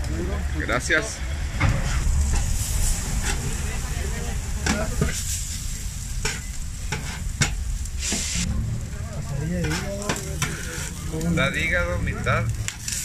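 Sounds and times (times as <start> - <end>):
metal spatula scraping griddle: 1.7 - 8.5, 9.4 - 13.0
meat sizzling on griddle: 1.7 - 13.0.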